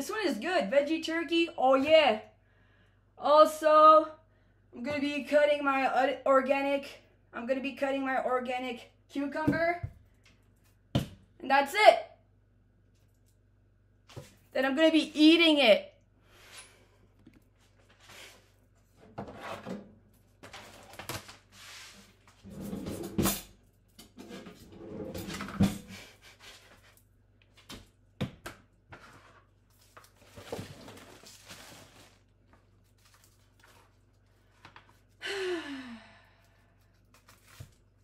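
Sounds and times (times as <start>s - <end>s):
rustling and short scrapes: 20.6s - 23.4s, 30.2s - 32.3s.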